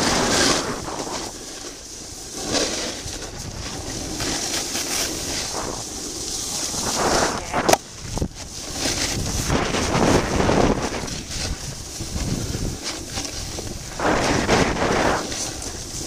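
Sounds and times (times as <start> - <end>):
ski edges scraping packed snow: 0.0 - 16.0
wind buffeting microphone: 5.0 - 16.0.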